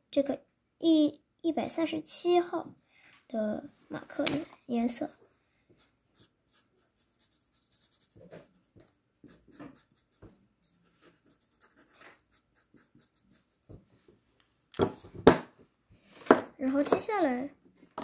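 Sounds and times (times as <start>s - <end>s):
marker scratching on paper: 5.8s - 13.9s.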